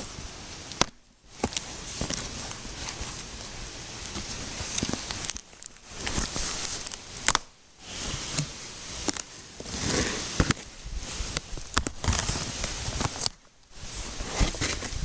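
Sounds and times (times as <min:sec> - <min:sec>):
cardboard box rustling and scraping: 0:07.8 - 0:15.0.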